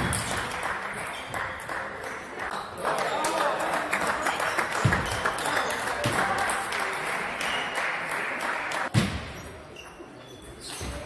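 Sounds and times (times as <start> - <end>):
spectators applauding: 0.0 - 8.9.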